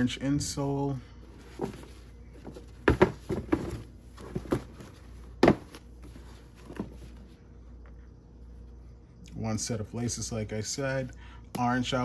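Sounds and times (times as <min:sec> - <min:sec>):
sneaker handling knocks and rustles: 0:01.3 - 0:07.3.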